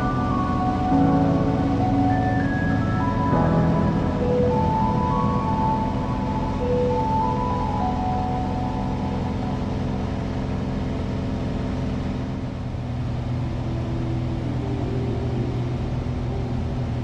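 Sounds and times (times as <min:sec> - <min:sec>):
light aircraft engine drone: 0:00.0 - 0:17.0.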